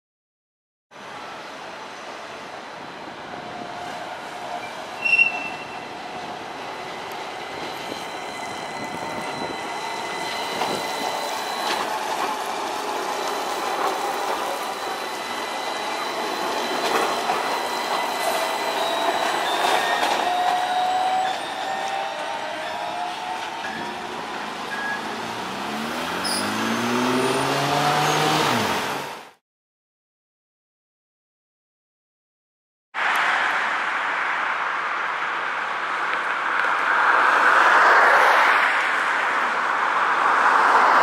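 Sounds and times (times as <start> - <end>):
tram wheels squealing: 3.5 - 28.6.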